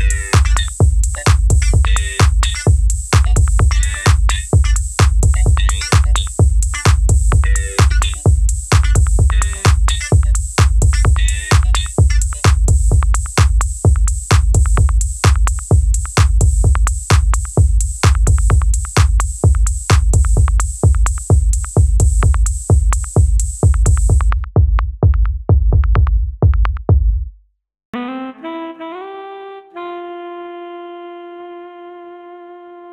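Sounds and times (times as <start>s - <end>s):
electronic music with drum-machine beat: 0.0s - 24.5s.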